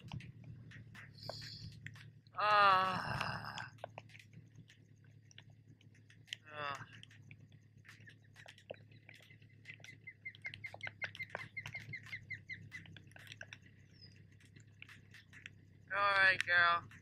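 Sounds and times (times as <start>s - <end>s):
raindrops ticking on plastic: 0.0s - 17.0s
bird chirping rapidly: 7.8s - 14.6s.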